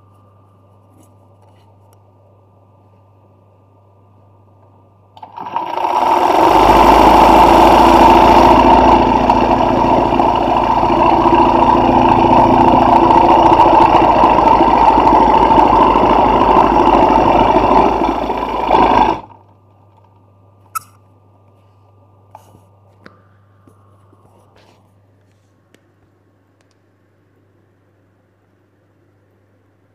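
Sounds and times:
sewing machine running fast: 5.2 - 19.4
low hum: 6.3 - 29.9.

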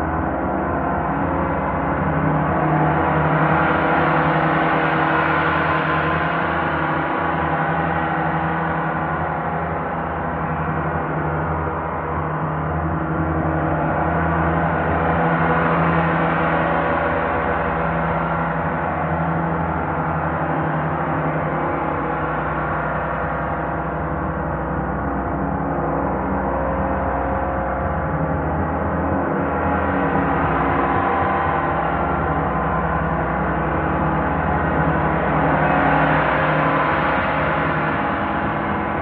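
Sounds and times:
large gongs ringing: 27.6 - 39.0.

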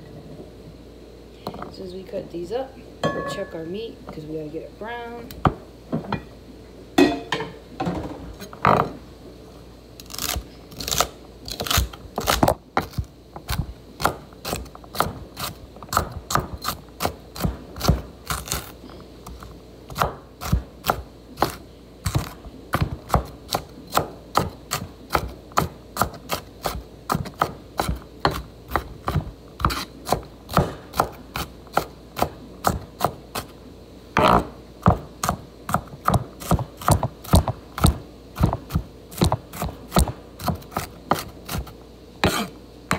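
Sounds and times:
knife chopping on wooden board: 10.2 - 18.7, 19.3 - 33.5, 34.2 - 42.5.

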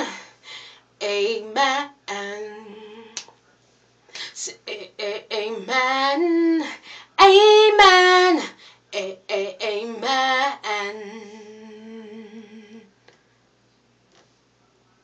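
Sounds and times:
woman singing gospel a cappella: 0.0 - 0.3, 1.0 - 3.3, 4.2 - 13.0.

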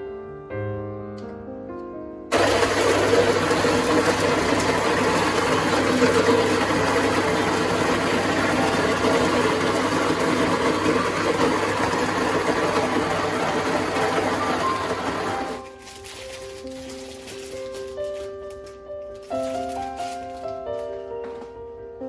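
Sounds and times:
electric coffee grinder running: 2.3 - 15.7.

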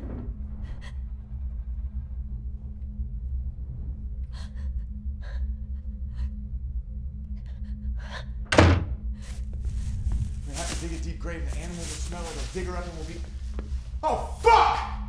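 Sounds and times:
low steady drone: 0.0 - 14.0
loud heavy thump: 8.5 - 9.0.

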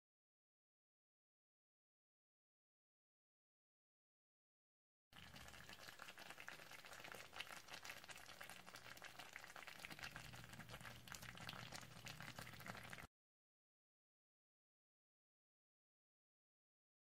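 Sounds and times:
stew bubbles popping: 5.2 - 13.1.

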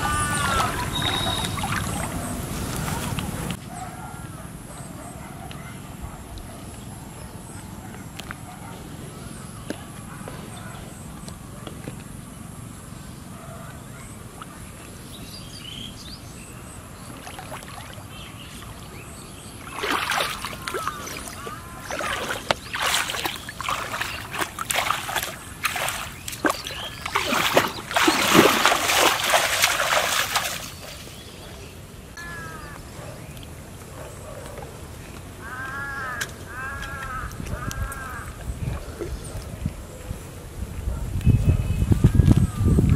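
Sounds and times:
water splashing and sloshing: 0.0 - 3.6, 16.8 - 31.7.

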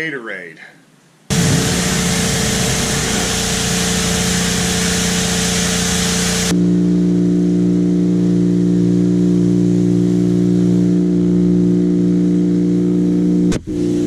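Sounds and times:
water spray hissing: 1.3 - 6.5
pressure washer motor humming: 1.3 - 6.6.

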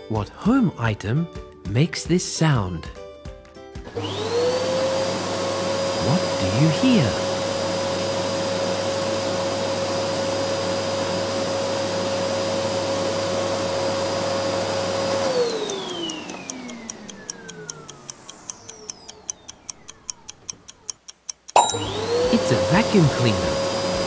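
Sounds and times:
vacuum cleaner motor whine: 3.8 - 20.2, 21.7 - 24.0
timer ticking: 15.6 - 23.4.

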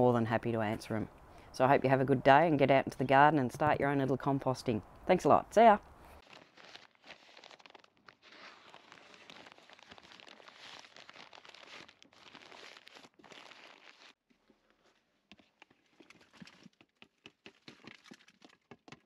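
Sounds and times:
newspaper rustling and crinkling: 6.2 - 18.3.

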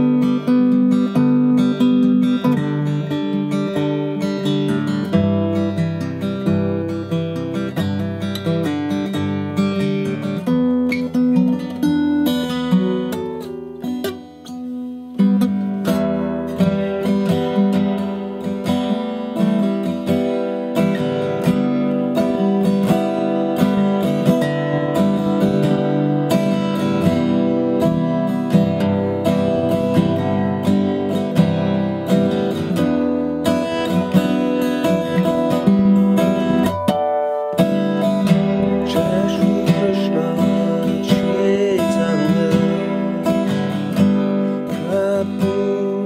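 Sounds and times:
acoustic guitar strummed: 0.0 - 46.0.

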